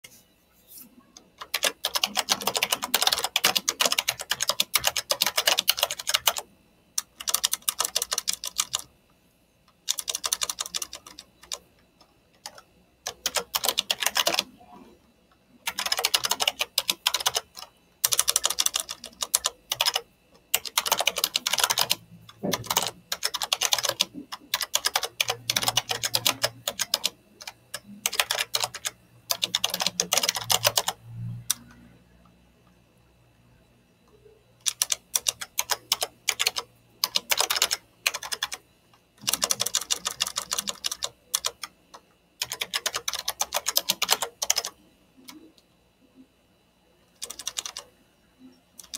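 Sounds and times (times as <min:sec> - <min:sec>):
typing on computer keyboard: 0:01.2 - 0:08.9, 0:09.8 - 0:11.6, 0:12.4 - 0:14.5, 0:15.6 - 0:31.8, 0:34.6 - 0:38.6, 0:39.2 - 0:45.5, 0:47.2 - 0:47.9.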